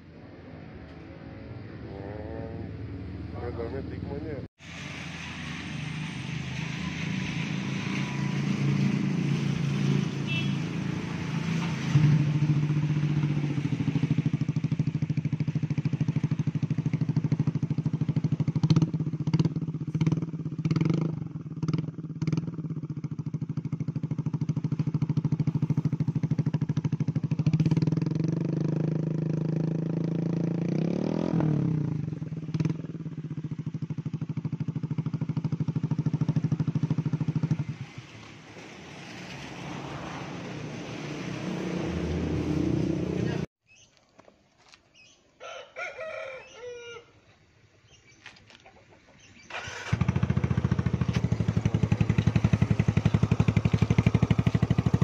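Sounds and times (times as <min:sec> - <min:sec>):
scooter engine running: 0:49.5 - 0:55.0.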